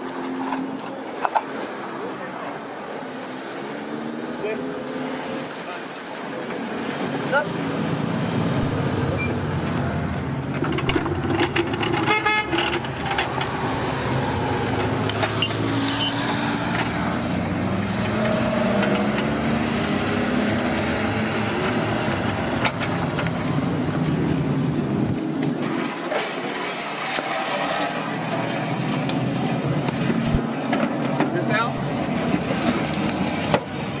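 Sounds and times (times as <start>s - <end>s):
knocks of tools and tyres: 14.5s - 17.1s, 28.3s - 34.0s.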